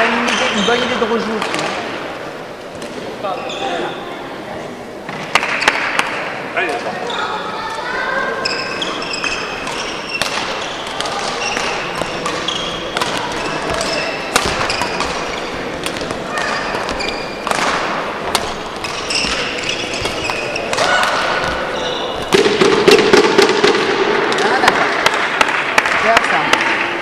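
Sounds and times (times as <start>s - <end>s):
shoes squeaking on court: 3.2s - 4.1s, 6.8s - 7.5s, 8.3s - 22.7s
racket striking shuttlecock: 9.2s - 27.0s.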